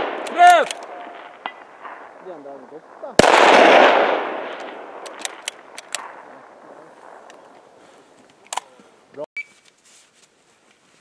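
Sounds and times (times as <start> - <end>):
rifle shot echoing: 0.0 - 7.8
sharp ticks: 4.6 - 6.1.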